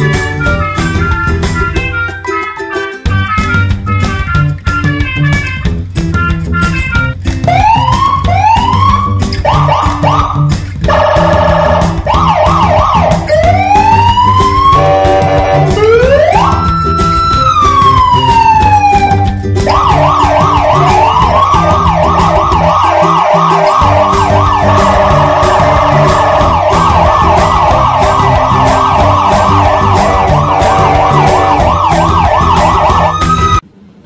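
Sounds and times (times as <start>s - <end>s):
background music with beat: 0.0s - 33.6s
siren wailing and yelping: 7.5s - 33.6s.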